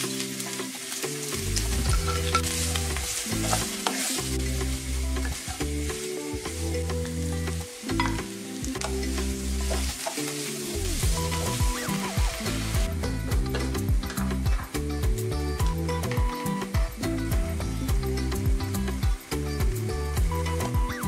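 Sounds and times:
soft background music: 0:00.0 - 0:21.0
vegetables sizzling in oil: 0:00.0 - 0:21.0
wooden spatula scraping pan: 0:02.0 - 0:04.4.

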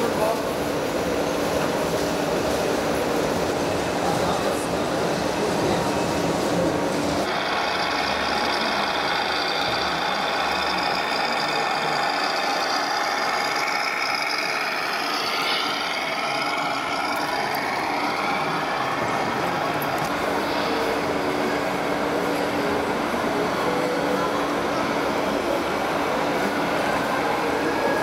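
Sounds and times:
model trucks running: 0:06.6 - 0:23.6
whining tones gliding: 0:07.3 - 0:24.2.

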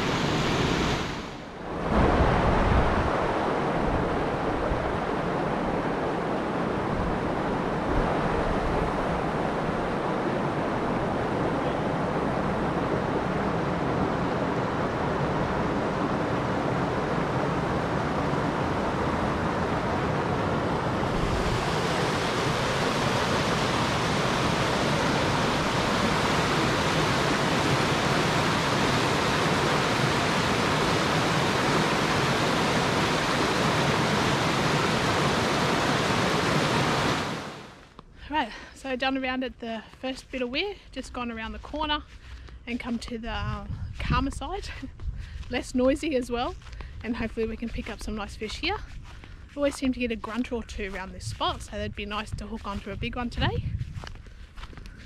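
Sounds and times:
water rushing over weir: 0:00.0 - 0:37.9.

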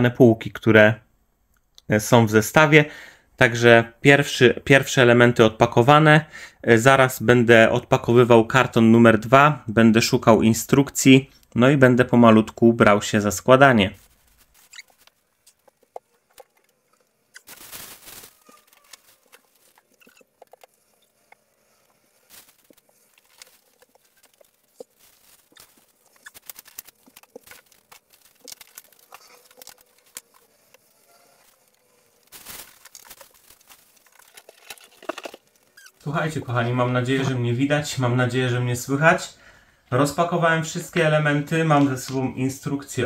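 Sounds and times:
loud rustling: 0:14.0 - 0:36.0.

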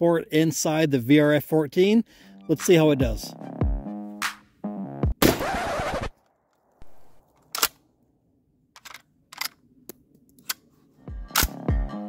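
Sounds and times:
shotgun metallic clicks: 0:07.3 - 0:07.9, 0:08.8 - 0:10.7, 0:11.3 - 0:11.7.

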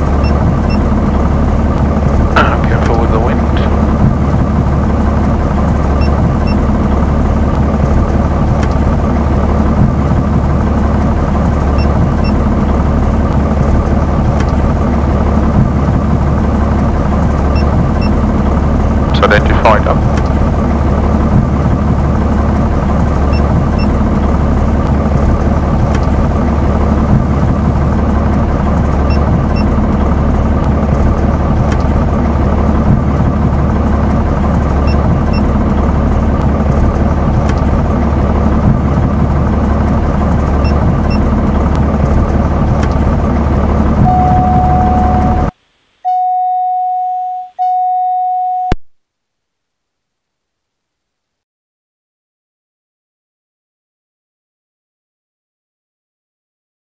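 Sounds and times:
aircraft engine droning: 0:00.0 - 0:45.6
electronic beep tone: 0:44.0 - 0:48.9.

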